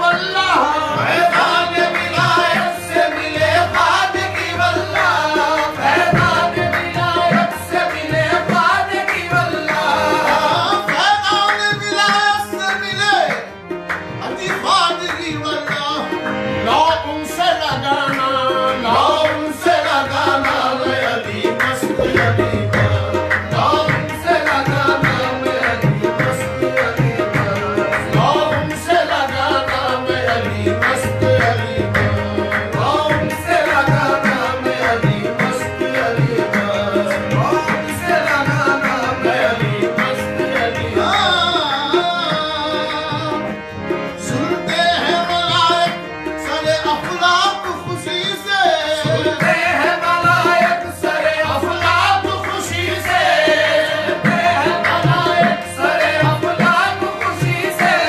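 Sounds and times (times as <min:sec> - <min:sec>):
chorus singing: 0:00.0 - 0:58.0
harmonium melody: 0:00.0 - 0:58.0
tabla beat: 0:00.0 - 0:58.0.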